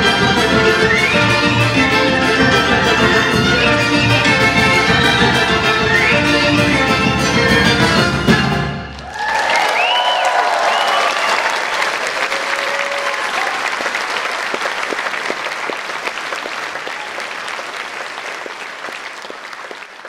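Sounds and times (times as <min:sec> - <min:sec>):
audience applauding: 0:08.9 - 0:20.0
audience cheering: 0:08.9 - 0:20.0.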